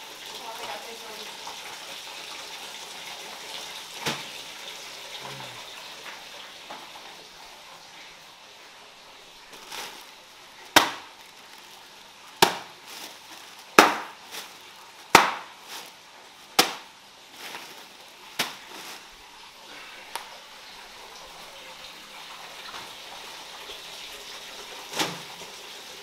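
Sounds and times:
bag of ice slammed on stone: 0:04.0 - 0:04.3, 0:10.7 - 0:11.4, 0:12.4 - 0:17.8, 0:18.4 - 0:19.0, 0:24.9 - 0:25.3.

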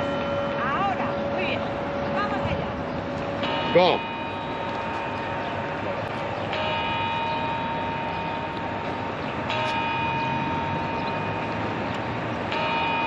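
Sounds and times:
clock bell strikes ringing: 0:03.4 - 0:13.0.

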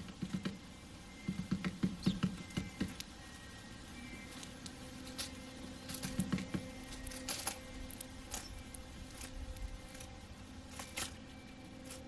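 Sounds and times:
faint steady hum: 0:00.0 - 0:12.0
beaks cracking seeds: 0:04.3 - 0:12.0.

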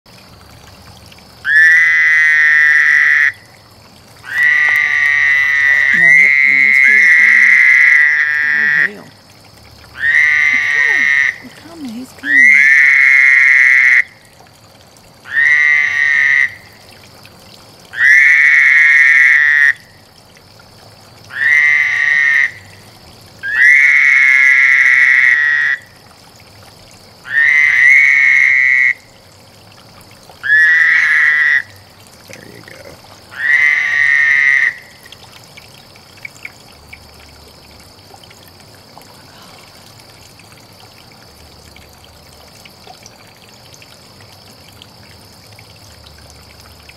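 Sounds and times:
toad trilling: 0:01.4 - 0:03.5, 0:04.2 - 0:09.2, 0:09.9 - 0:14.2, 0:15.2 - 0:16.8, 0:17.9 - 0:20.0, 0:21.3 - 0:22.8, 0:23.4 - 0:26.0, 0:27.2 - 0:29.0, 0:30.4 - 0:35.2.

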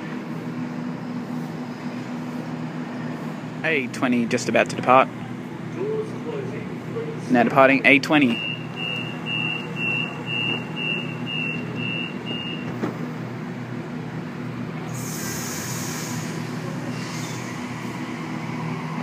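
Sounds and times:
train electric hum: 0:00.0 - 0:19.0
door warning high beeps: 0:08.3 - 0:12.7
air hiss burst: 0:15.0 - 0:17.5.

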